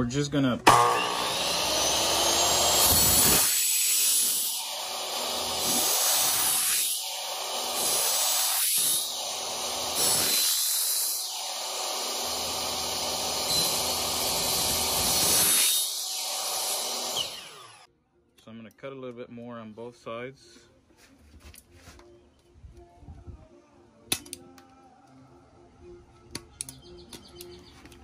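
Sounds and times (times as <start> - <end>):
miter saw cutting metal: 0.6 - 17.9.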